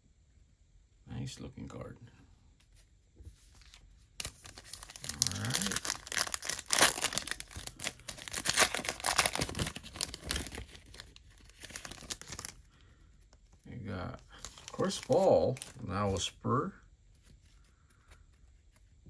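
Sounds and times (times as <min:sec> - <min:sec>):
foil wrapper crinkling and tearing: 0:04.2 - 0:12.7, 0:14.3 - 0:15.9.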